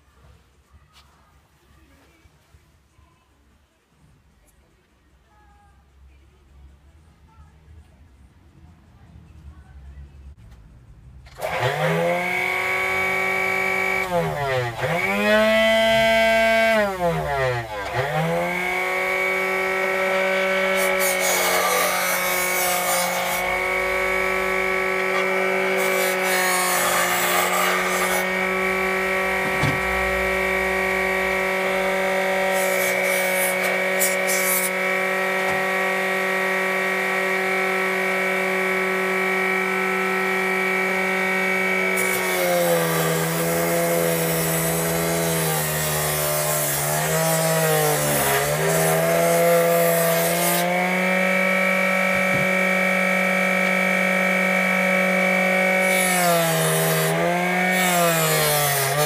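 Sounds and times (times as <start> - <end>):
disc sander motor whining: 11.3 - 45.8, 46.7 - 58.2
metal grinding on sanding disc: 11.4 - 50.6.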